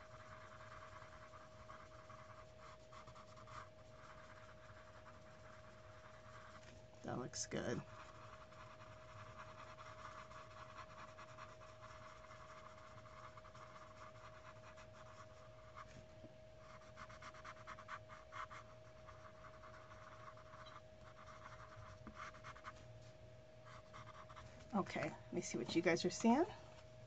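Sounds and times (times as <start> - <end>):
colored pencil scratching on paper: 0.0 - 16.0, 16.6 - 22.8, 23.6 - 24.5
faint steady hum: 0.0 - 27.0.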